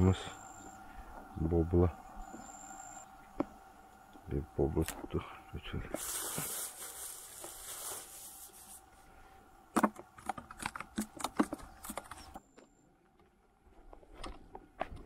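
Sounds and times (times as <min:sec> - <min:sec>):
plastic bag rustling: 0:06.0 - 0:08.9
clicks and knocks on bucket: 0:09.7 - 0:12.2.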